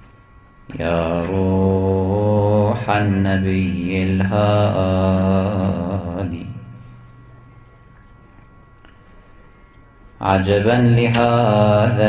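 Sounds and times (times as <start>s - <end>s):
man chanting long held notes: 0.7s - 7.1s, 10.2s - 12.0s.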